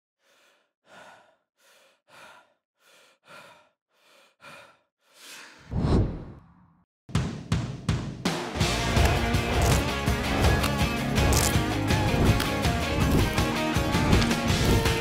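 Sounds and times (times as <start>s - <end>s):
man breathing: 0.2s - 5.7s.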